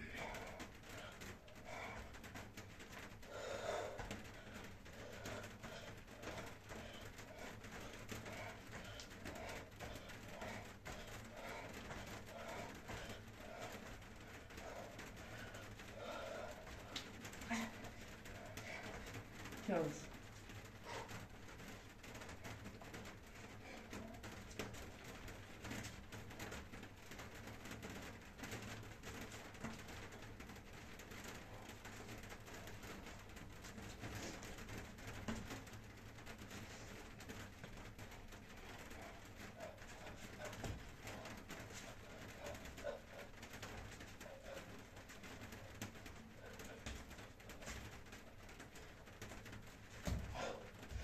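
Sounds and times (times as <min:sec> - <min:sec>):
bare feet tapping on mat: 0:49.1 - 0:51.0.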